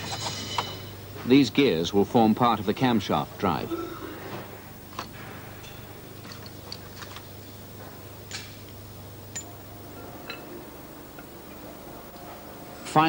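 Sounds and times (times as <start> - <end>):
steady low hum: 0.0 - 13.0
metallic clicks of engine parts: 4.9 - 7.3.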